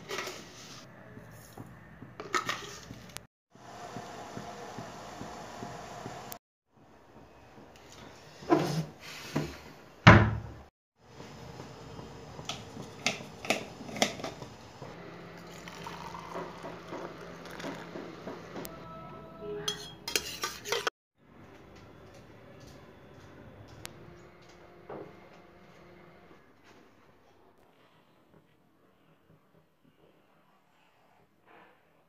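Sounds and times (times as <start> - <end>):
water pouring into steel mug: 15.4 - 17.9
metal kitchenware clinking: 19.7 - 20.9.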